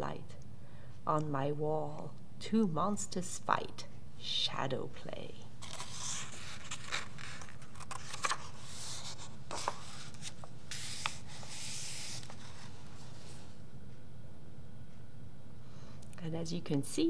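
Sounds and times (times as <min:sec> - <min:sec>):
hands sliding over pages: 0:05.6 - 0:13.6
paper pages rustling: 0:05.6 - 0:13.6.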